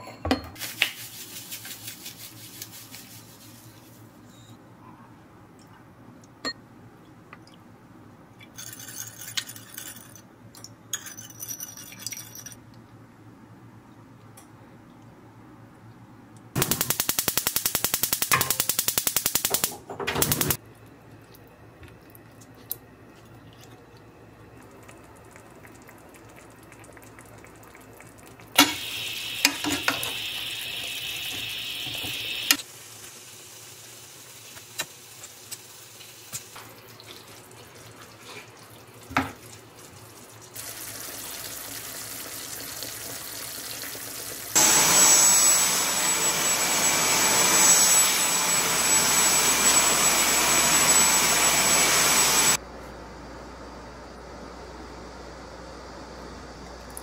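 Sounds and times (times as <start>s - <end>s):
food simmering in frying pan: 24.6s - 44.6s
vacuum cleaner whining: 28.6s - 32.6s, 44.6s - 52.6s.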